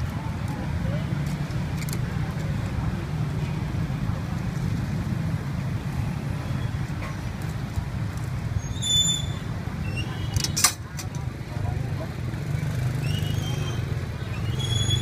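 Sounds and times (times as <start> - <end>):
street traffic rumble: 0.0 - 15.0
high squeak: 8.6 - 10.6, 13.0 - 15.0.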